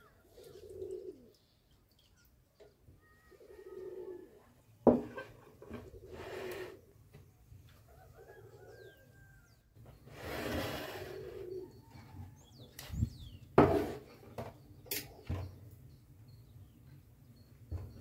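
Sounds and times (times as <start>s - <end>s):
dove cooing: 0.0s - 1.5s, 3.0s - 4.6s, 5.6s - 7.0s, 7.9s - 9.5s, 10.5s - 12.6s
faint high bird chirps: 0.0s - 4.3s, 11.4s - 13.5s
dishes knocking on wooden table: 4.9s - 5.2s.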